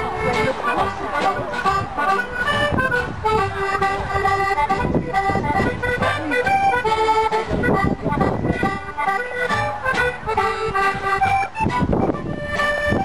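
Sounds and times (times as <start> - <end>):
accordion dance music: 0.0 - 13.0.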